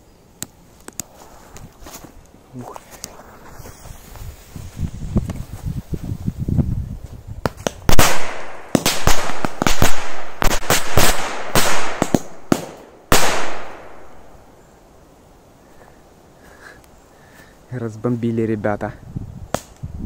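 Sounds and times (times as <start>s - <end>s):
firecrackers banging: 7.5s - 13.8s.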